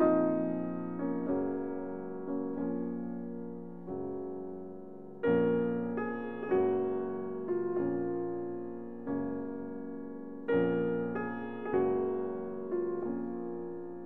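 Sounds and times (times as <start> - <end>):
slow soft piano chords: 0.0 - 14.0.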